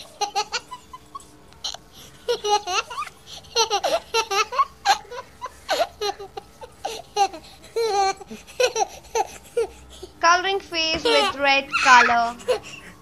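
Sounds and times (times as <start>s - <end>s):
small child giggling and babbling: 10.8s - 12.7s.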